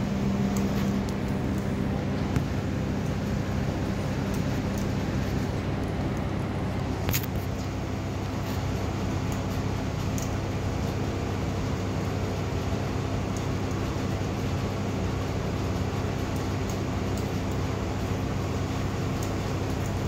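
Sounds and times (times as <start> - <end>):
machine hum and hiss: 0.0 - 20.0.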